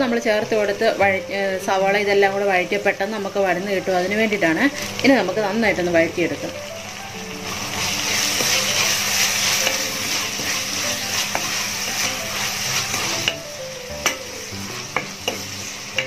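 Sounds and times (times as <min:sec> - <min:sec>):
vegetables sizzling in oil: 0:00.0 - 0:16.0
wooden spatula scraping pan: 0:07.4 - 0:13.4.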